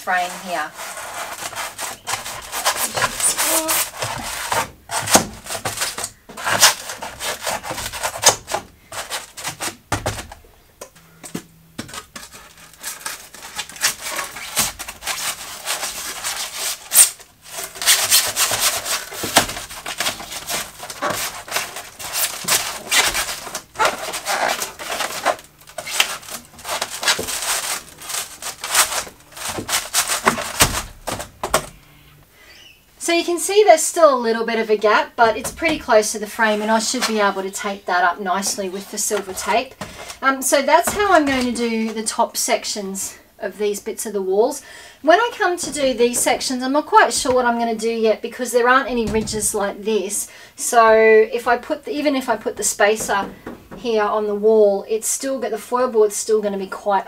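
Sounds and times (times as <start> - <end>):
foam panel scraping against metal: 0.0 - 10.3, 11.8 - 31.6.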